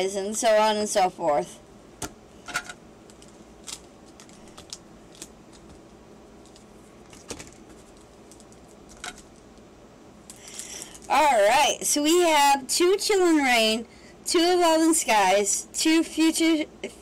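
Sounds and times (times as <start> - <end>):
foil packs rustling: 3.1 - 5.8, 6.4 - 9.4.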